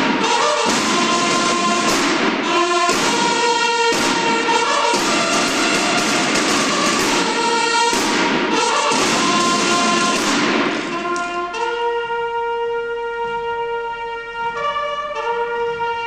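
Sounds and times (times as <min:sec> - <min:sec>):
snare drums beating: 0:00.0 - 0:11.7
bugles playing long notes: 0:00.0 - 0:16.0.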